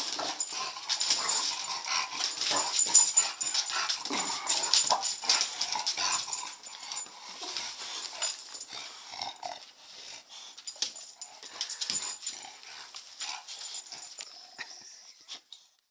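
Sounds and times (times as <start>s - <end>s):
dog claws clicking on wood floor: 0.0s - 8.7s, 10.6s - 14.3s.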